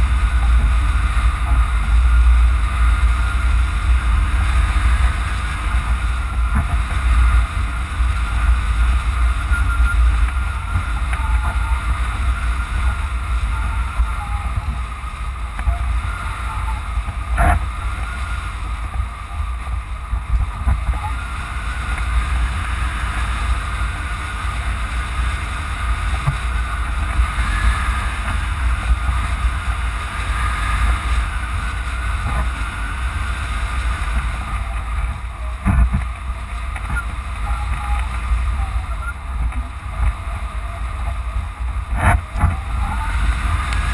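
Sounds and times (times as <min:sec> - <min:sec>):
wind buffeting microphone: 0:00.0 - 0:43.9
faint wavering whistle: 0:08.2 - 0:15.0, 0:36.9 - 0:39.3.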